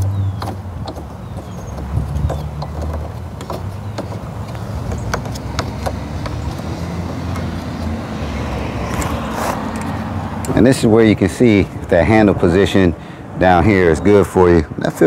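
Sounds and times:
plastic knobs clicking: 0:00.0 - 0:06.7.

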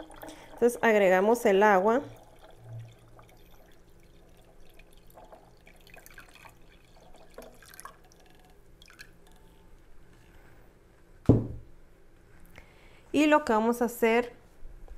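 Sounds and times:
water pouring into blender jar: 0:00.0 - 0:09.5.

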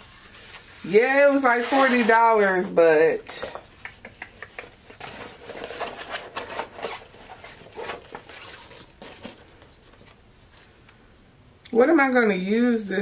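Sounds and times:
bag and paper rustling: 0:05.0 - 0:10.2.

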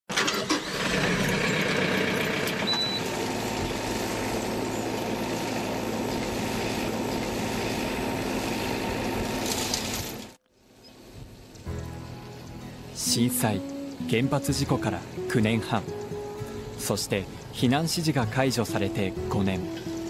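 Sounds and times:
engine starting clicks: 0:00.1 - 0:03.7
tractor diesel engine running: 0:00.1 - 0:10.4, 0:11.2 - 0:20.0.

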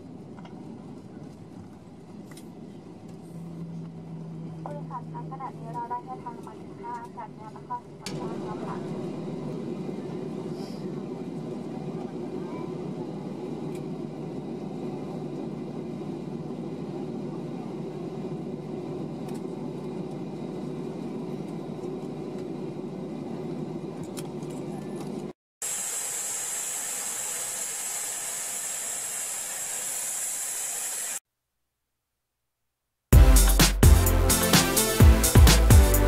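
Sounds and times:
aircraft engine rumble in cabin: 0:00.0 - 0:25.4.

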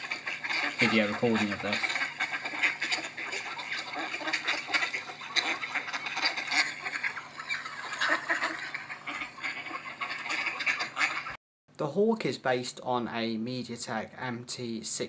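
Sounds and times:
ducks quacking: 0:00.0 - 0:11.4.

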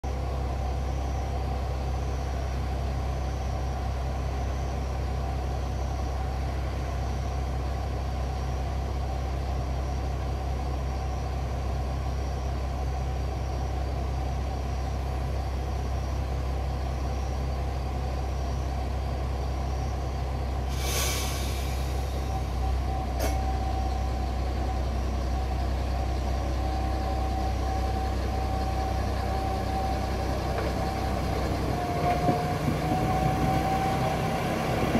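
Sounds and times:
diesel engine idling: 0:00.0 - 0:34.9
steady whine: 0:00.0 - 0:34.9
air hiss: 0:20.7 - 0:22.3.

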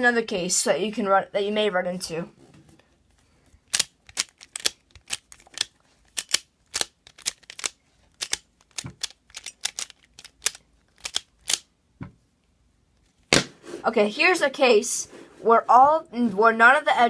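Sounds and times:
plastic puzzle clicking: 0:03.7 - 0:11.6.

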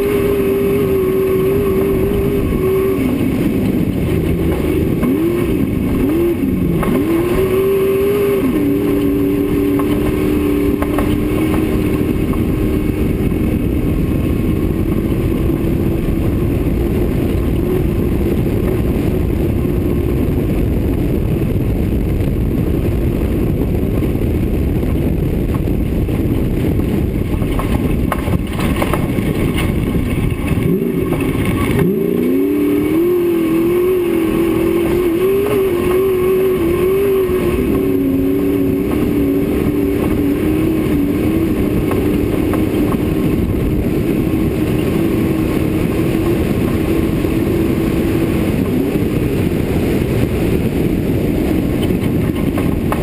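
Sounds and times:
race car engine running hard: 0:00.0 - 0:53.0
road and wind noise: 0:00.0 - 0:53.0.

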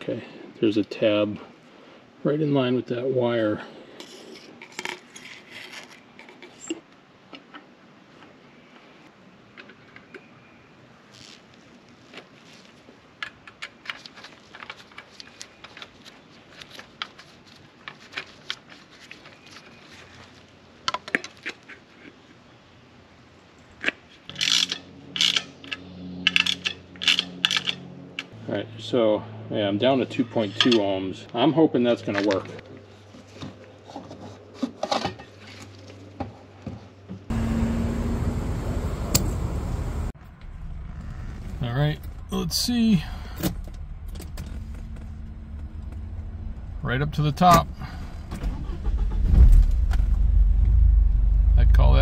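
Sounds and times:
plastic rubbing: 0:11.1 - 0:22.2
fuel nozzle filling tank: 0:47.8 - 0:50.0.

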